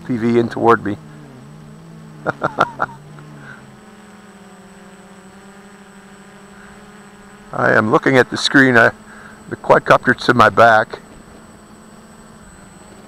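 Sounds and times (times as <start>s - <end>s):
drone propellers buzzing: 0.0s - 13.0s.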